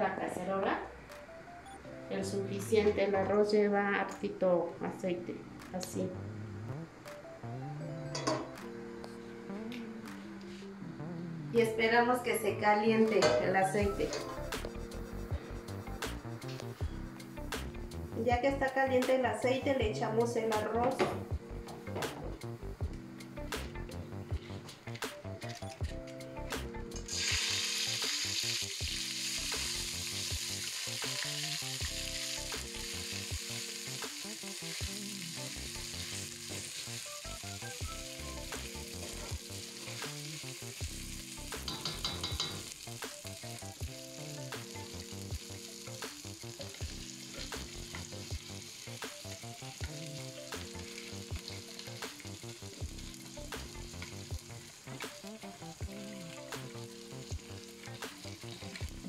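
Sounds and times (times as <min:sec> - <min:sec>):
rice sizzling in hot oil: 0:13.9 - 0:18.0, 0:26.6 - 0:59.0.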